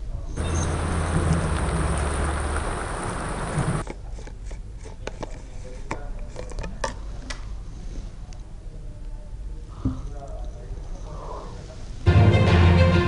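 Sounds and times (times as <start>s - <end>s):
steady low hum: 0.0s - 4.9s
heavy rain on a road: 0.4s - 3.8s.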